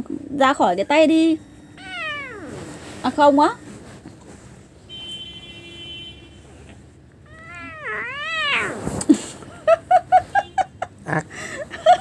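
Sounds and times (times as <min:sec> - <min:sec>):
cat yowling: 0:01.8 - 0:03.0, 0:07.3 - 0:09.0.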